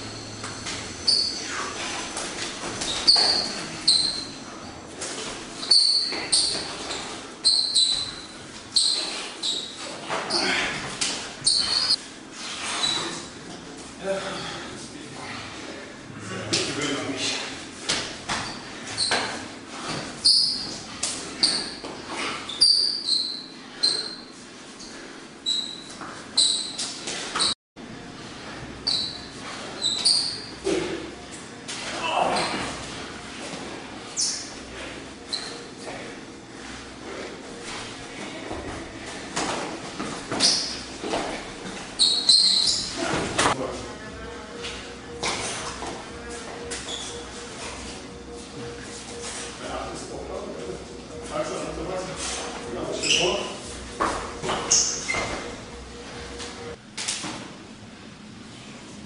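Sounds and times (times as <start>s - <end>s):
shoes squeaking on wooden floor: 0.3s - 13.3s, 18.0s - 24.3s, 25.4s - 27.6s, 28.8s - 30.9s, 35.2s - 36.1s, 37.6s - 43.6s, 44.6s - 49.6s, 50.6s - 56.8s.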